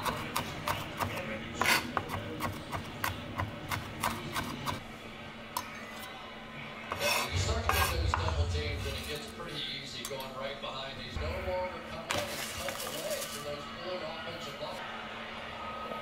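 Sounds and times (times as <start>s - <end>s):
knife blade scraping board: 1.6s - 2.0s, 6.9s - 8.2s.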